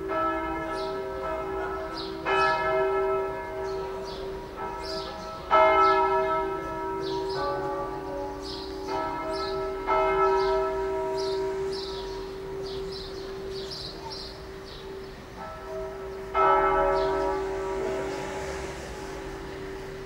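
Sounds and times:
church bells ringing a peal: 0:00.0 - 0:20.0.

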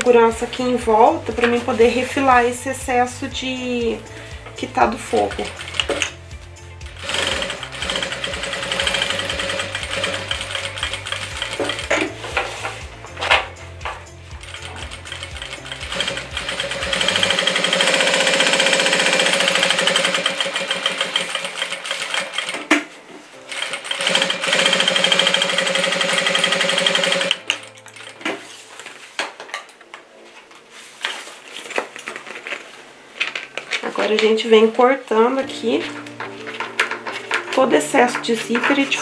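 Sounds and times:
industrial sewing machine stitching: 0:05.2 - 0:06.2, 0:06.9 - 0:12.1, 0:14.4 - 0:22.6, 0:23.5 - 0:27.4.

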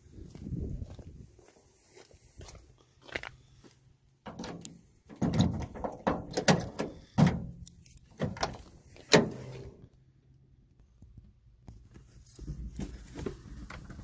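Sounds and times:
clunks and knocks: 0:04.3 - 0:07.6
car door opening: 0:04.3 - 0:09.8.

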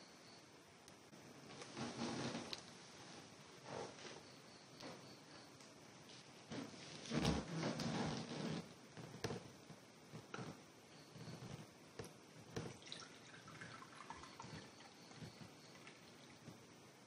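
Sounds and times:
coffee pouring into cup: 0:12.6 - 0:16.5.

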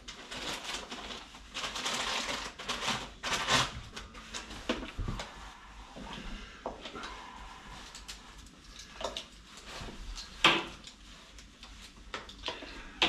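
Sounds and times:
rustling: 0:00.0 - 0:13.0.

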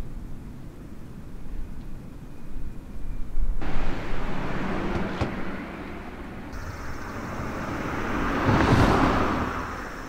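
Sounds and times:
vehicle noise: 0:03.3 - 0:10.0.

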